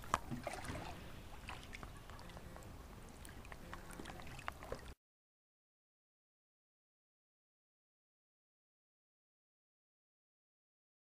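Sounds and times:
sharp splash: 0:00.0 - 0:01.8
pool water lapping and gurgling: 0:00.0 - 0:05.0
small splashes and drips: 0:00.0 - 0:05.0.

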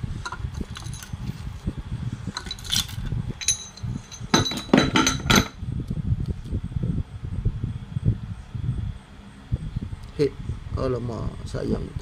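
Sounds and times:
low background rumble: 0:00.0 - 0:12.0
metal parts and tools clinking: 0:00.2 - 0:01.4, 0:02.3 - 0:05.6.

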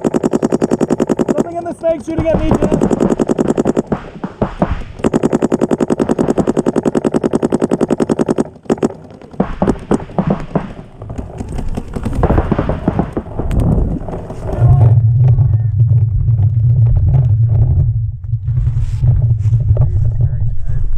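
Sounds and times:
paintball marker shots: 0:00.0 - 0:14.6.

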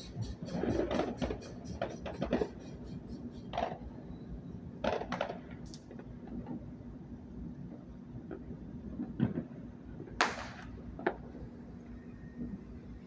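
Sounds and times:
fireworks popping and crackling: 0:04.8 - 0:05.6.

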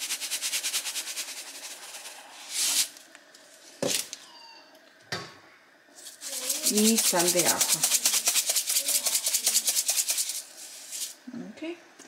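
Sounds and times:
salt shaker rattling: 0:00.0 - 0:03.0, 0:06.0 - 0:11.2
short hiss: 0:02.3 - 0:04.2.

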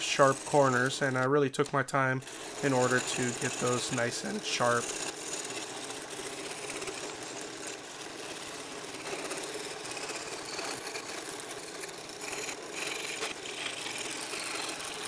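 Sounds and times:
scroll saw cutting wood: 0:00.0 - 0:15.0.

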